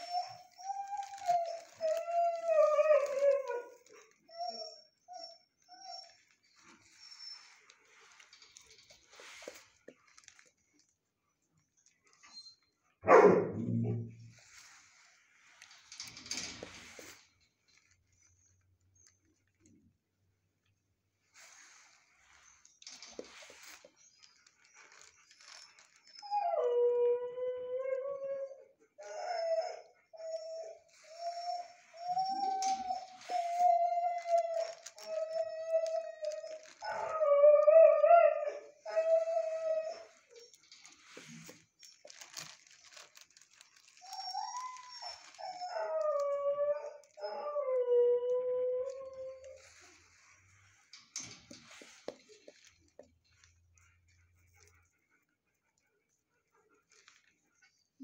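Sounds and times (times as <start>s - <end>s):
dog whining: 0.0s - 7.6s, 23.7s - 42.7s, 43.9s - 50.5s
soft rustling: 0.0s - 12.5s, 14.1s - 27.2s, 29.1s - 54.9s.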